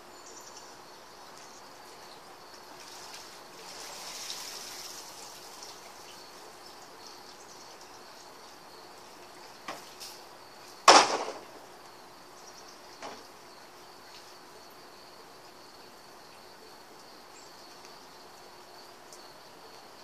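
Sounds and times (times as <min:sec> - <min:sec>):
water splashing in pool: 0:02.8 - 0:06.2.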